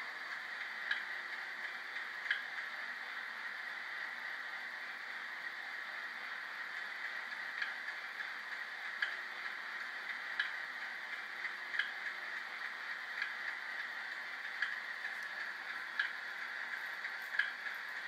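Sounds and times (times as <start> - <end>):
model train diesel engine idling: 0.0 - 18.0
light ticking: 0.2 - 3.2, 6.6 - 18.0.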